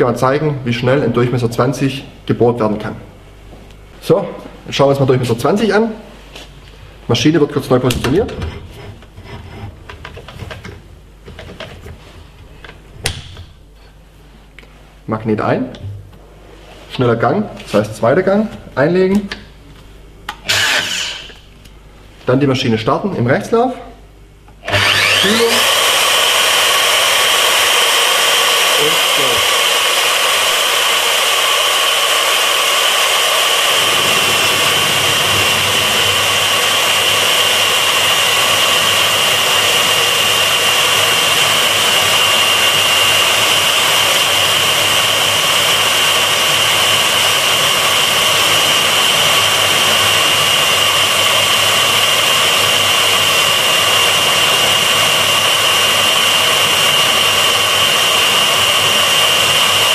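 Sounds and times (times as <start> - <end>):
low rough cutting noise: 20.3 - 21.5, 24.6 - 50.2
core drill motor whine: 20.4 - 21.5, 24.6 - 59.9.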